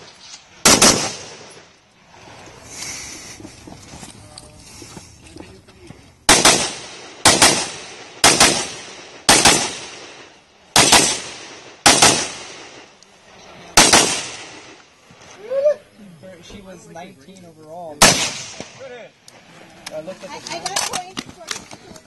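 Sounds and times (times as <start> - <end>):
rifle shots: 0.6 - 1.6, 6.3 - 12.9, 13.8 - 14.8, 18.0 - 18.8.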